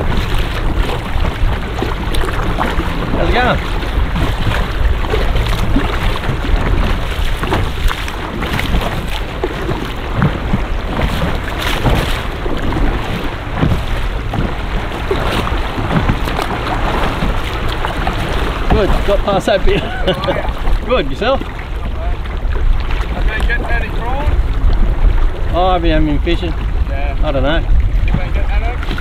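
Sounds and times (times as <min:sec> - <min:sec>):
water sloshing and splashing: 0:00.0 - 0:29.0
wind buffeting microphone: 0:00.0 - 0:29.0.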